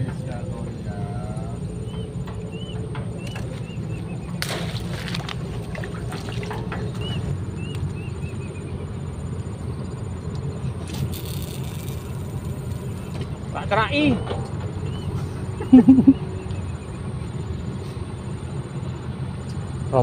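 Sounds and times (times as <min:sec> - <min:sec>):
open-air noise: 0:00.0 - 0:20.0
small bird chirping: 0:06.8 - 0:13.2, 0:14.1 - 0:17.4.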